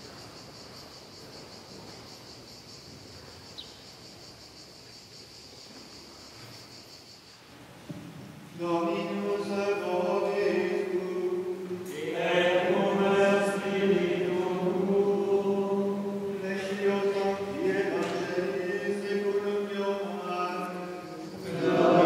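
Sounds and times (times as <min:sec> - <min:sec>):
men chanting in a church: 0:08.5 - 0:22.0.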